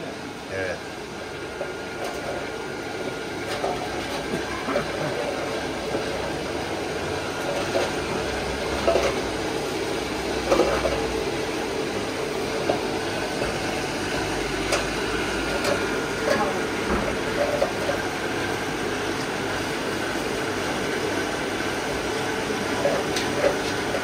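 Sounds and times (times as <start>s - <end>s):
forge blower rushing: 0.0s - 24.0s.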